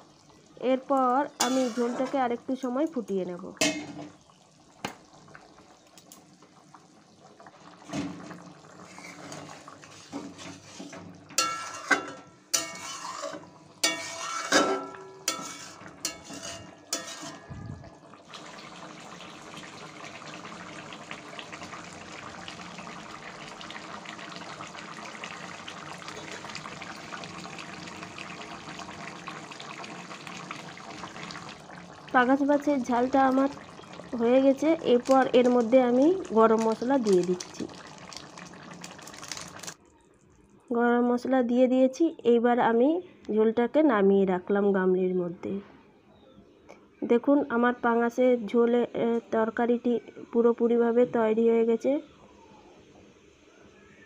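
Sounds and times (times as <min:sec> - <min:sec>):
gravy bubbling at a simmer: 0:00.0 - 0:11.9, 0:12.6 - 0:40.7
spatula scraping metal pan: 0:01.4 - 0:02.3, 0:08.8 - 0:17.5.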